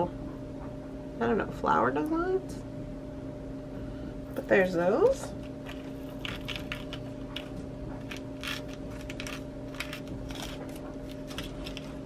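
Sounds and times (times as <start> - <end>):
plastic bag crinkling: 5.4 - 12.0.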